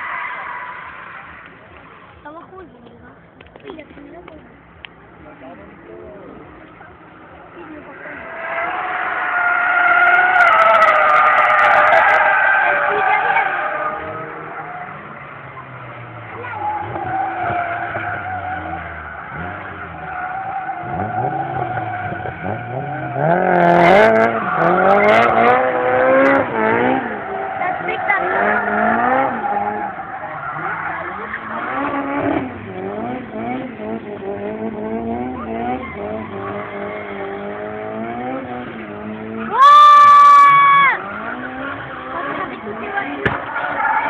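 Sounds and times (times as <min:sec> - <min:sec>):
car engine revving: 0:00.0 - 0:44.0
tyres squealing: 0:08.2 - 0:32.8, 0:39.3 - 0:44.0.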